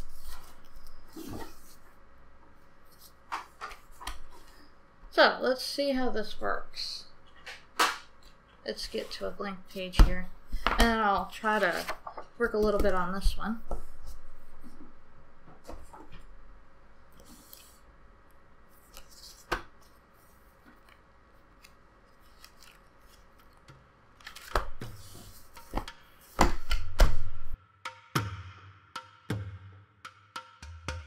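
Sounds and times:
paper pages rustling: 0.0 - 2.0, 10.5 - 13.1, 17.2 - 17.8, 18.7 - 26.6.

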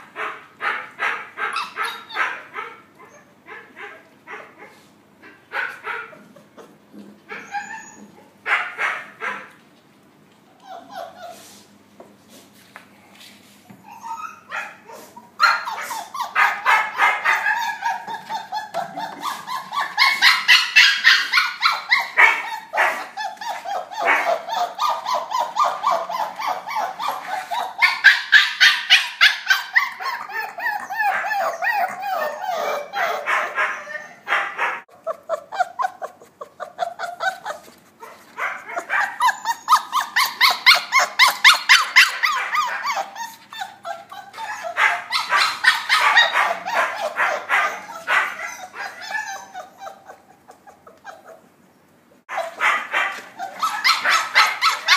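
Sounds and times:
puppies yipping and barking: 0.0 - 9.6, 10.4 - 11.8, 13.6 - 51.6, 52.2 - 54.9.

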